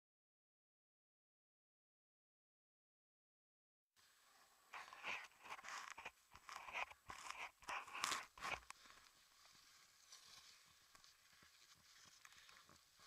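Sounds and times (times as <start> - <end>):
glove and jacket rustling on microphone: 4.7 - 13.0.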